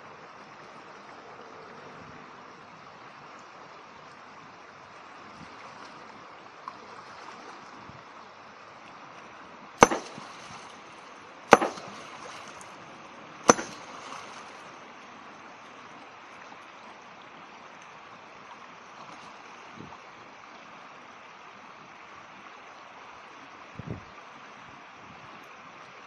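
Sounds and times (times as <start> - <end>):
mountain stream rushing: 0.0 - 26.0
hammer striking boulder: 9.8 - 10.4, 11.5 - 12.2, 13.5 - 14.0.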